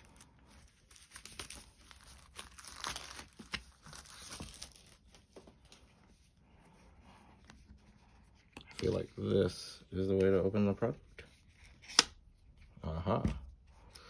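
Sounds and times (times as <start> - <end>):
plastic film crinkling: 0.0 - 5.8.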